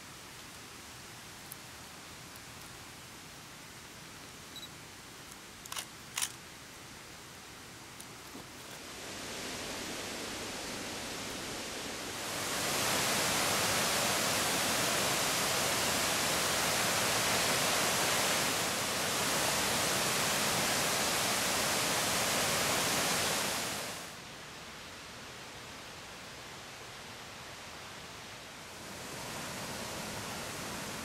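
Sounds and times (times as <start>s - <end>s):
river rapids rushing over rocks: 8.9s - 24.1s.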